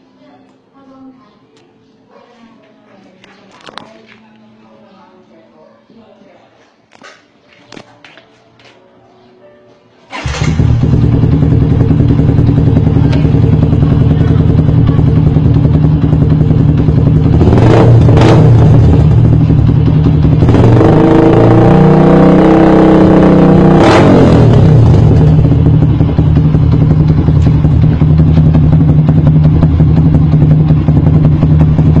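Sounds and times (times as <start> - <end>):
motorcycle engine revving: 10.1 - 32.0.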